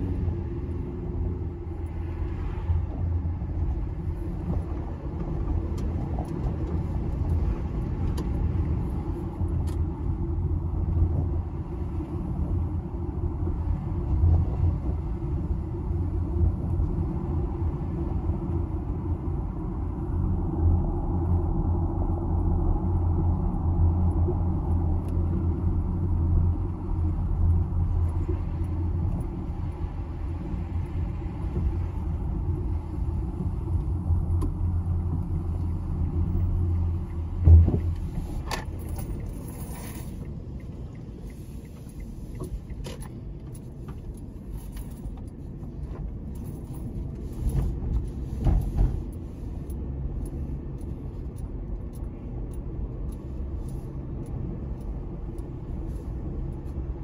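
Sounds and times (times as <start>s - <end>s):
car road noise rumble: 0.0s - 57.0s
thump: 37.4s - 37.9s, 48.4s - 49.0s.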